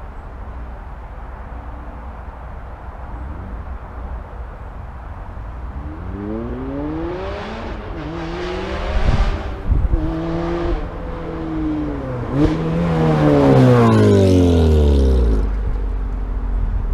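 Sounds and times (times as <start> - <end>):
sports car accelerating hard: 5.7 - 15.8.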